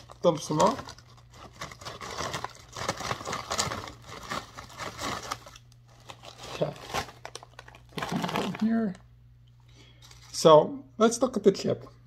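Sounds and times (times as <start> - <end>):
crinkling plastic chip bag: 0.0 - 9.0.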